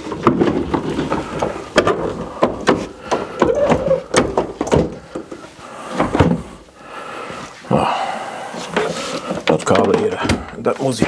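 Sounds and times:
wooden cabinet knocking and scraping: 0:00.0 - 0:05.4, 0:06.0 - 0:06.6, 0:08.7 - 0:11.0.

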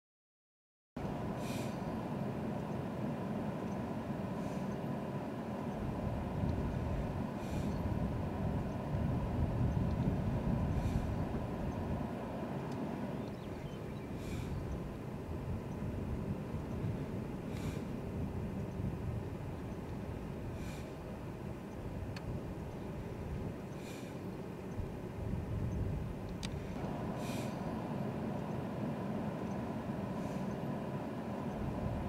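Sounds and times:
steady low rumble: 0:01.0 - 0:32.0.

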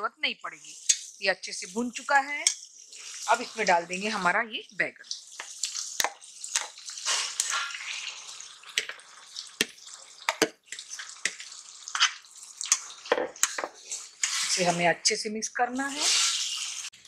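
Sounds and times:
hot oil sizzling in a pan: 0:00.0 - 0:17.0
food scraped into a pan: 0:00.7 - 0:01.2, 0:05.1 - 0:14.8, 0:15.8 - 0:16.9.

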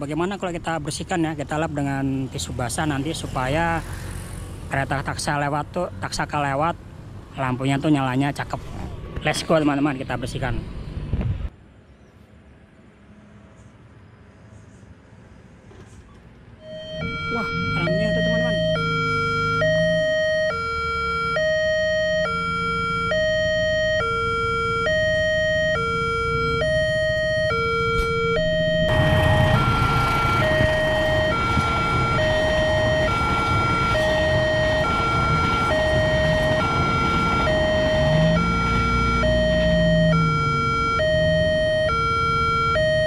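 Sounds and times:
level crossing alarm two-tone: 0:16.6 - 0:43.0
passenger train rushing past: 0:28.9 - 0:38.5.

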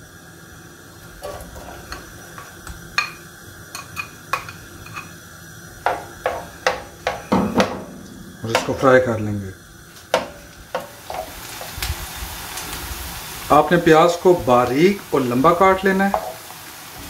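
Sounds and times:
faint onion sizzle: 0:00.0 - 0:17.0
spoon knocking bowl and pan: 0:01.2 - 0:05.1, 0:05.8 - 0:08.8, 0:10.1 - 0:11.7, 0:16.0 - 0:16.5.

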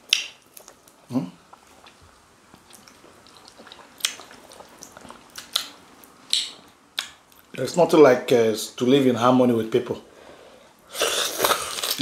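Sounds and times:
wet eating mouth sounds: 0:00.0 - 0:07.6.

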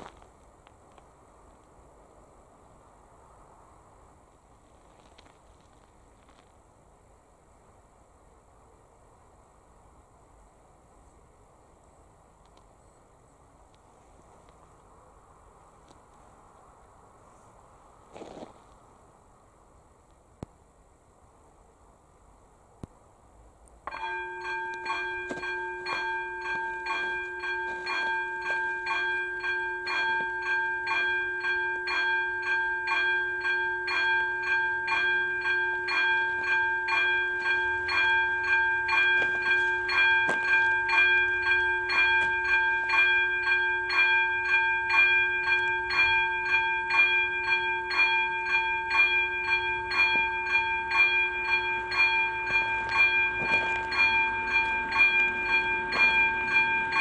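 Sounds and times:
level crossing warning bell: 0:23.9 - 0:57.0.

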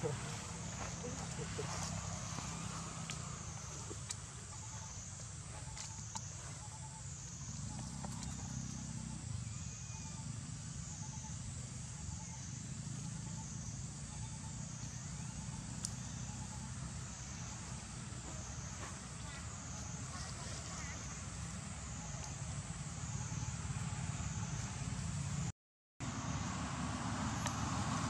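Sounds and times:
steady low rumble: 0:00.0 - 0:09.5.

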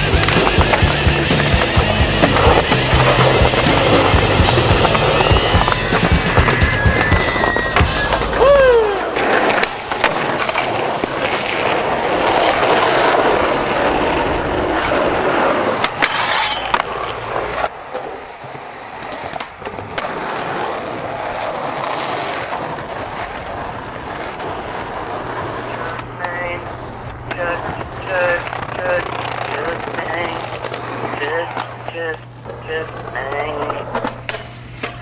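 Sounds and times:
skateboard grinding on metal rail: 0:00.0 - 0:31.8, 0:33.8 - 0:35.0
skateboard clacks: 0:00.0 - 0:35.0
skateboard wheels rolling on concrete: 0:00.0 - 0:35.0
short falling squeal: 0:04.9 - 0:08.8.

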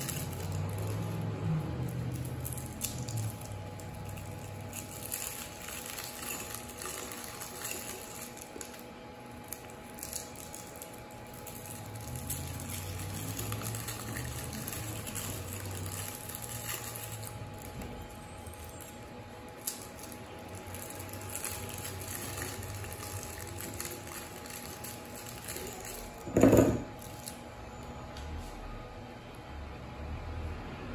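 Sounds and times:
candies clicking into glass: 0:19.6 - 0:27.3.

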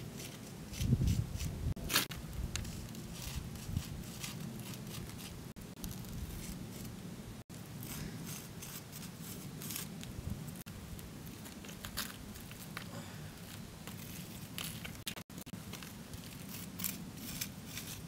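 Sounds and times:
scratchy rubbing on stone: 0:00.1 - 0:05.4, 0:07.8 - 0:09.9, 0:16.2 - 0:18.0.

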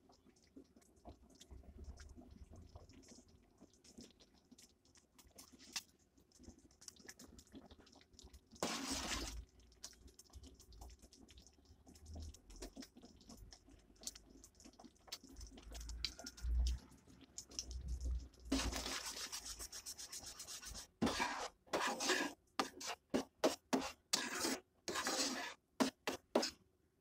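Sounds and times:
spoon stirring in steel pot: 0:08.6 - 0:10.0, 0:18.5 - 0:26.6.

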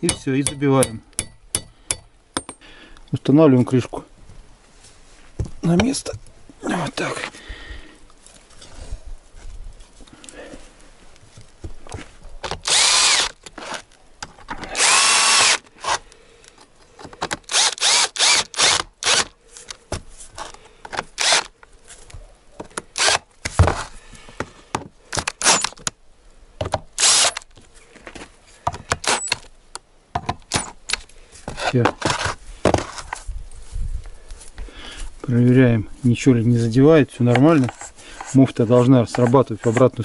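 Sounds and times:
cordless drill motor: 0:12.5 - 0:13.4, 0:14.8 - 0:16.0, 0:17.5 - 0:19.3, 0:21.2 - 0:21.5, 0:23.0 - 0:23.2, 0:27.0 - 0:27.4.

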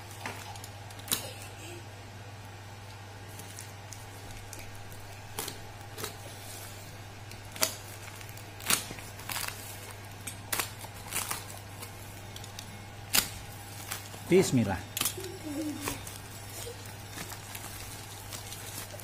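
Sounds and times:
plastic bag crinkling: 0:07.3 - 0:12.7, 0:13.4 - 0:19.0.

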